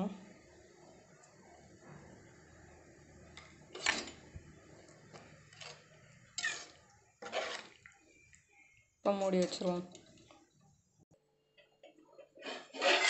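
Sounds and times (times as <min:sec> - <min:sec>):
ladle scraping and knocking pot: 0:03.4 - 0:04.3, 0:05.1 - 0:07.8, 0:11.9 - 0:13.0.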